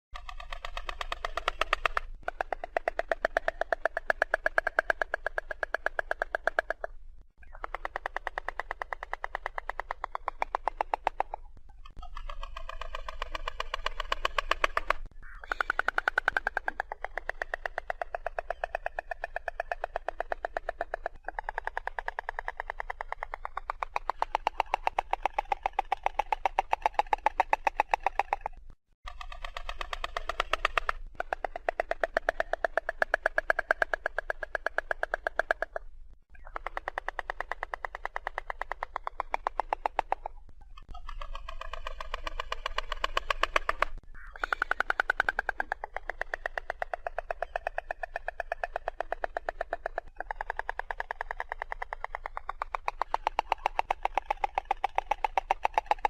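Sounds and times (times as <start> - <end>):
stork bill-clattering: 0.2 - 6.9, 7.6 - 35.8.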